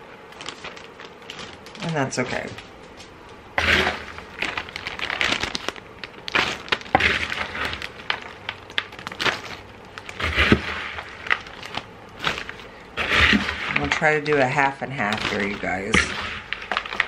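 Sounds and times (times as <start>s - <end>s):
plastic bag crinkling: 0.0s - 17.0s.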